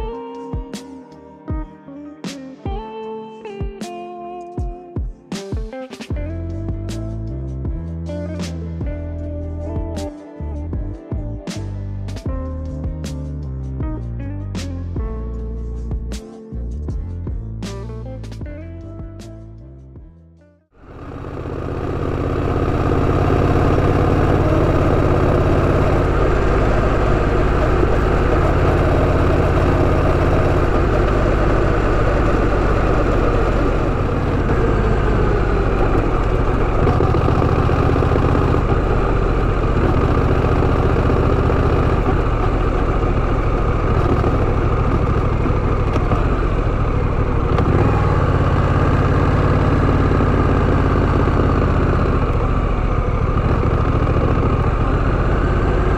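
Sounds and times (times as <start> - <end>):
motorcycle engine running: 20.8 - 55.9.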